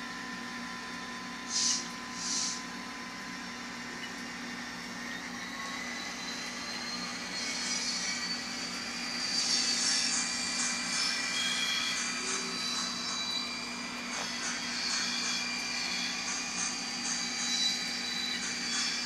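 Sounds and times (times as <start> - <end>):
diesel engine drone from small speaker: 0.0 - 19.0
hiss: 1.4 - 2.7, 9.1 - 13.2.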